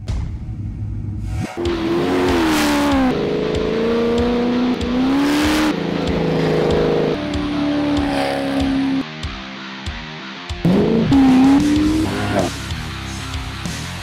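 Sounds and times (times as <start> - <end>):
engine revving hard: 1.6 - 9.0, 10.6 - 12.7.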